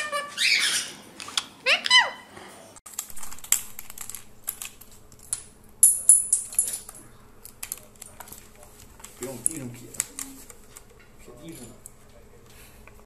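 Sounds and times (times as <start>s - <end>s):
keycaps snapping off: 2.9s - 5.5s
keyboard keys clicking and rattling: 2.9s - 12.0s.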